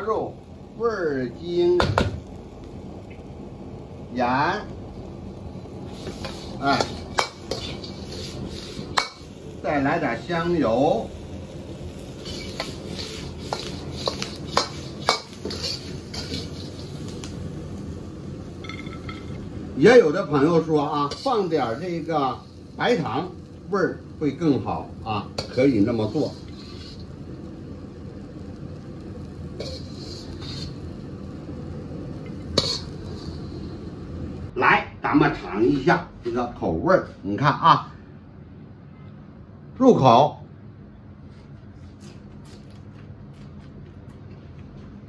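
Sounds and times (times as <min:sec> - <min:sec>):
low background hum: 0:00.0 - 0:45.0
ladle scraping a wok: 0:05.8 - 0:09.8, 0:11.8 - 0:17.4, 0:20.4 - 0:23.2, 0:25.2 - 0:27.3, 0:29.4 - 0:31.3, 0:32.1 - 0:33.9.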